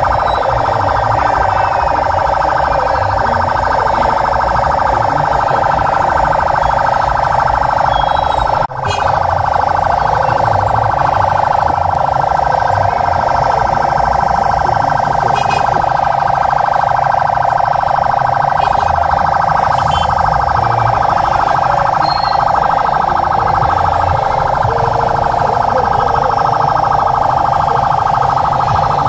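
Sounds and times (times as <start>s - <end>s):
electronic siren warbling: 0.0s - 29.0s.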